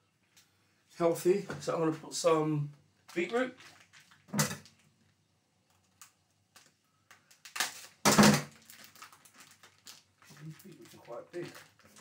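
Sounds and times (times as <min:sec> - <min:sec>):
loud packaging rustles: 0:05.8 - 0:12.0.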